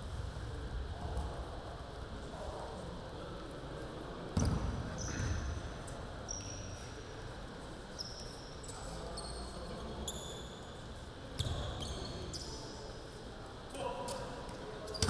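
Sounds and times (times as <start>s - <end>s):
basketball bouncing on wooden floor: 4.4s - 4.6s.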